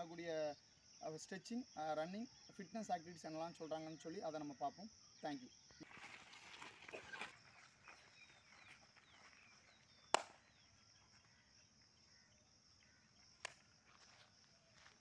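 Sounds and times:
bird chirps: 3.2s - 13.8s.

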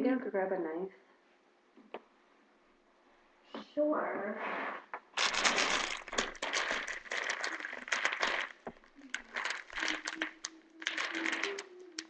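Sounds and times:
plastic wrapping crinkling: 5.2s - 12.0s.

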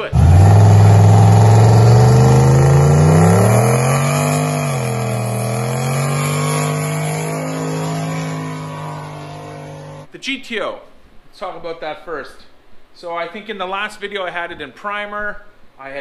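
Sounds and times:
engine revving high: 0.0s - 10.1s.

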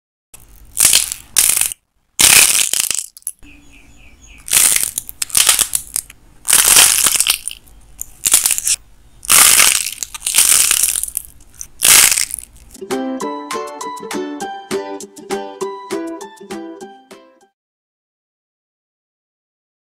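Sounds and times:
dried clay cracking and crumbling: 0.4s - 3.4s, 4.4s - 12.8s.

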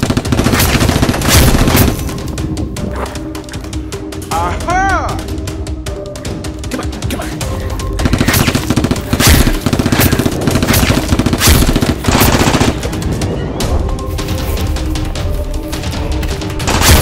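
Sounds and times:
background music: 0.0s - 17.0s
automatic gunfire: 8.0s - 12.8s.

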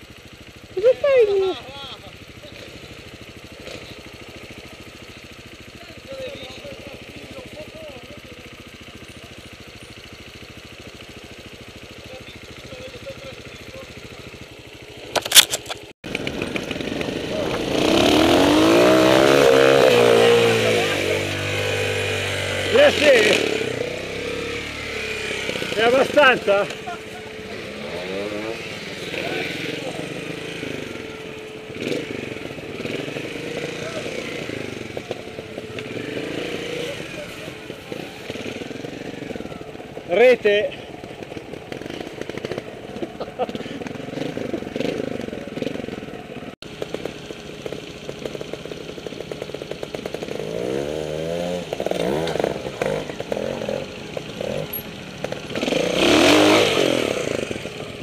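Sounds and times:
motorcycle engine idling: 0.0s - 58.0s
engine revving up: 16.1s - 39.6s, 50.0s - 58.0s.

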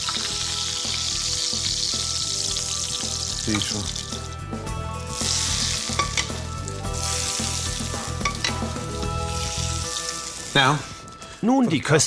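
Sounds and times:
oil sizzling in a frying pan: 0.0s - 4.4s, 5.0s - 10.9s.

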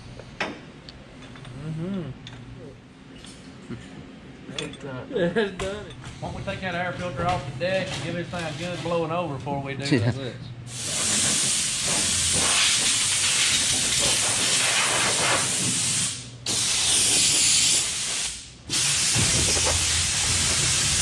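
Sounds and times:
compressed air blow gun hissing: 10.7s - 21.0s.

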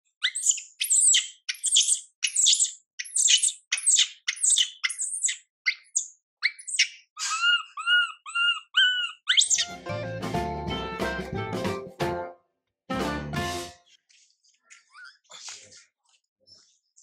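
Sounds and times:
infant monkey screeching cries: 0.2s - 9.7s.

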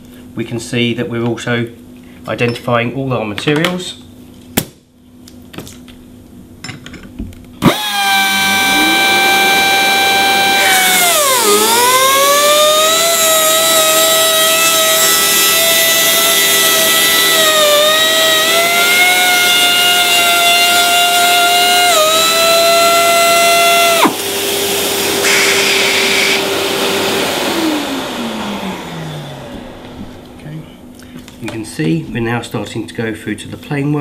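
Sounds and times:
low steady hum and hiss: 0.0s - 7.6s
sanding tool motor whining: 7.6s - 30.4s.

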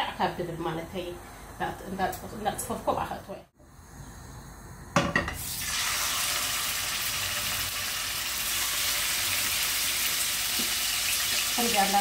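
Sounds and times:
fish sizzling in hot oil: 5.4s - 12.0s.

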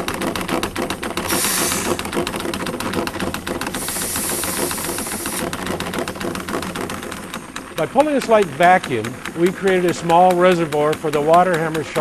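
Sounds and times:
diaphragm pump clattering: 0.0s - 12.0s
air hissing through valve: 1.2s - 2.0s, 3.7s - 5.4s.

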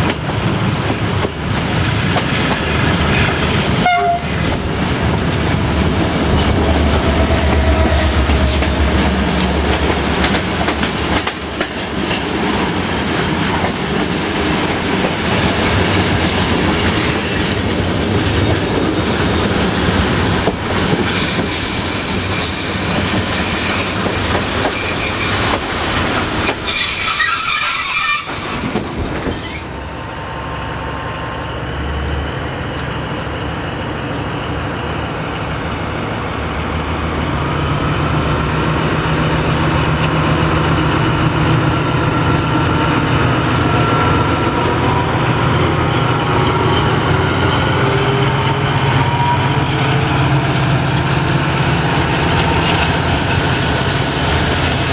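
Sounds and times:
locomotive engine hum: 0.0s - 21.1s, 28.3s - 54.9s
train rattling running noise: 0.0s - 54.9s
train wheels squealing: 19.0s - 29.8s, 43.4s - 49.9s.

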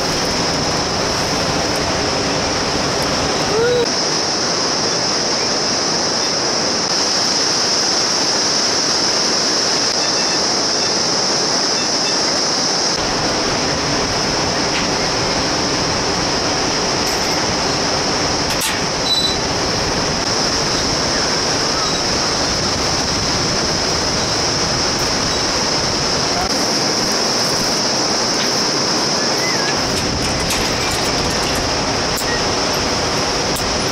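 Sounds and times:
whitewater river rushing: 0.0s - 33.9s.

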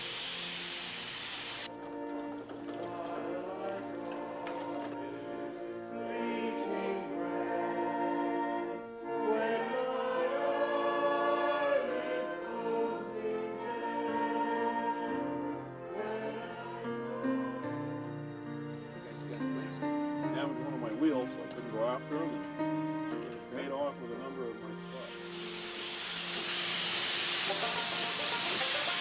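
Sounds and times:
congregation singing a hymn: 1.7s - 19.5s.

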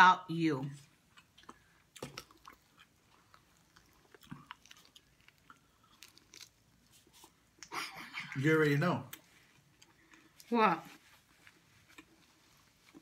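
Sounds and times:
chewing and biting: 1.1s - 7.7s.

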